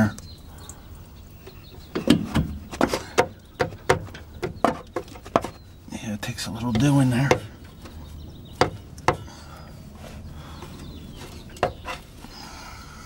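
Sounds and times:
shock absorber knocks and clunks: 1.9 - 5.6.

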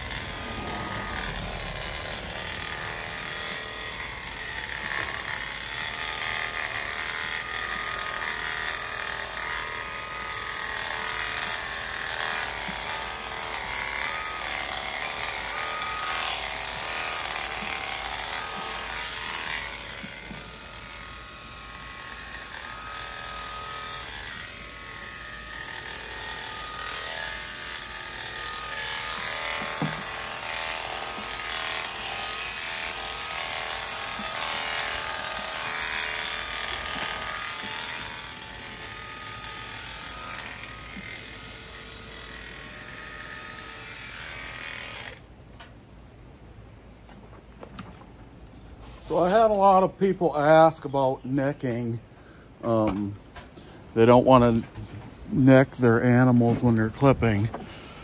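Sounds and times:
electric sheep clippers buzzing: 0.0 - 45.4.

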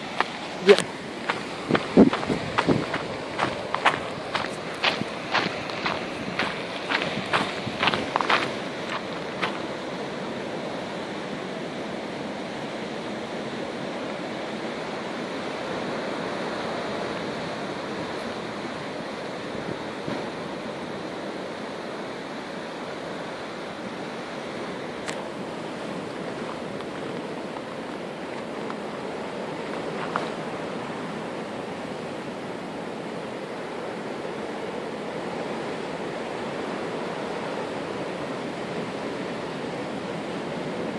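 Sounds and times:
sea waves and surf: 0.0 - 40.9.

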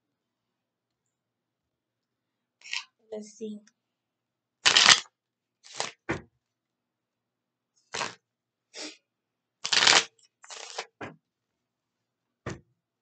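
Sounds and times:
cards being shuffled: 4.7 - 5.0, 5.7 - 6.0, 7.9 - 8.2, 9.6 - 11.0.

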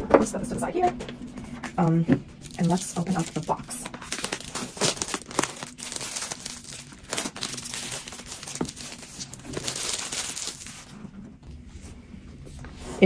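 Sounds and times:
packaging rustling and crackling: 1.9 - 11.2.

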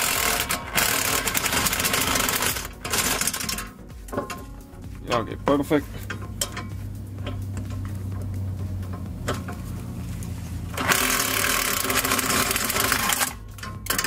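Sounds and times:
power tool motor hum: 0.0 - 3.7, 9.0 - 14.0
harsh rushing noise: 0.0 - 14.0.

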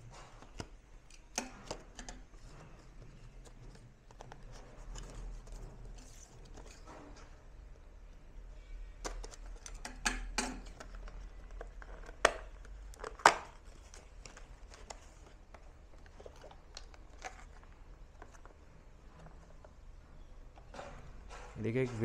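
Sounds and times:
cardboard scraping and rustling: 2.3 - 7.4.

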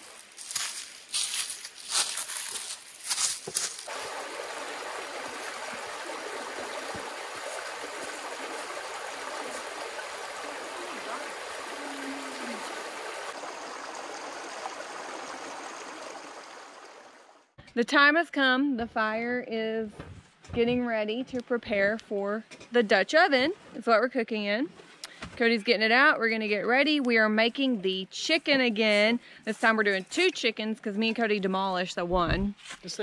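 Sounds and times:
footsteps on rocks and leaves: 0.0 - 3.9
creek running over rocks: 0.0 - 17.5.

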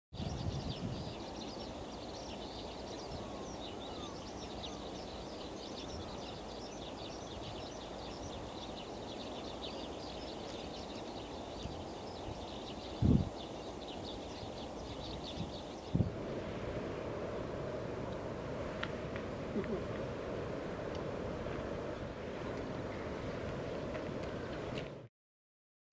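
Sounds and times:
flock of birds calling: 0.2 - 16.0.

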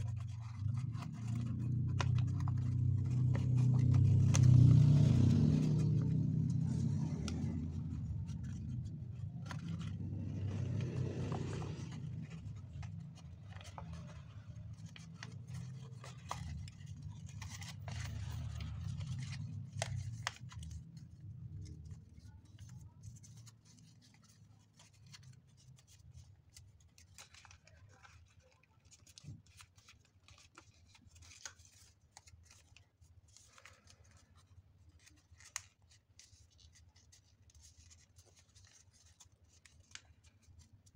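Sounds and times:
low rumble: 0.0 - 22.1
paper rustling and crinkling: 0.0 - 40.9.

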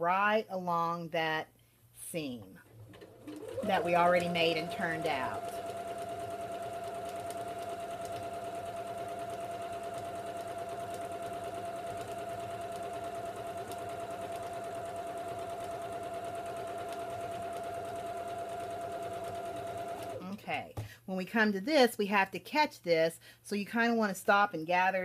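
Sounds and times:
electric sewing machine stitching: 2.6 - 20.3.

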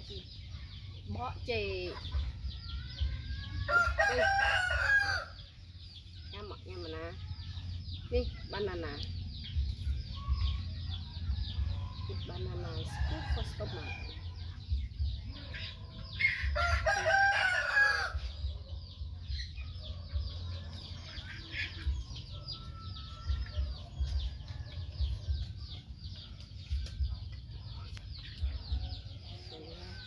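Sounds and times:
rooster crowing: 3.6 - 5.4, 16.6 - 18.2.

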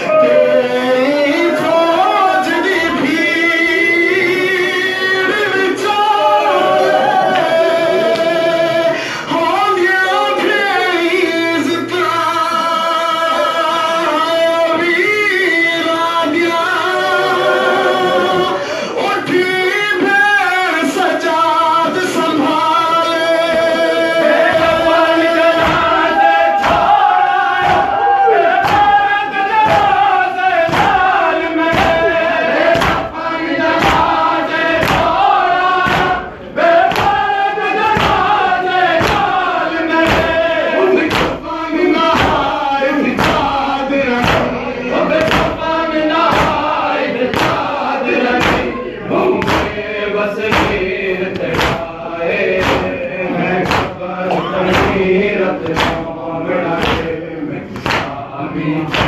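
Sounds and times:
crowd singing along: 0.0 - 59.0
lead reciter chanting: 0.0 - 59.0
men chanting: 0.0 - 59.0
hands beating chests: 24.5 - 56.1, 56.8 - 58.2.

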